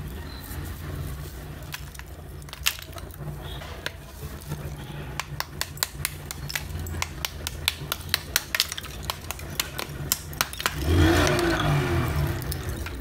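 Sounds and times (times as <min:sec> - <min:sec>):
dry crunching of clay: 0:00.3 - 0:13.0
small hammer tapping on clay: 0:05.2 - 0:11.6.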